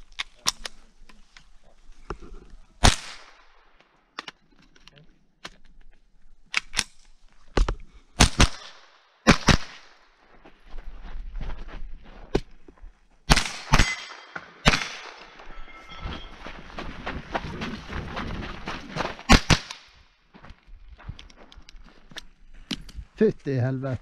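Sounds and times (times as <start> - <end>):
rifle shots cracking: 2.8 - 3.5, 8.2 - 10.0, 13.3 - 15.4, 19.3 - 19.9.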